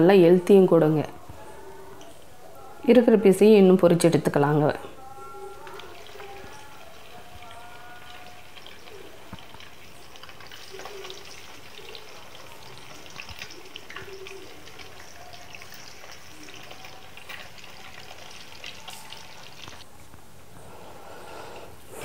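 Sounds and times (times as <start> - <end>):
chicken deep-frying in hot oil: 5.4 - 19.8.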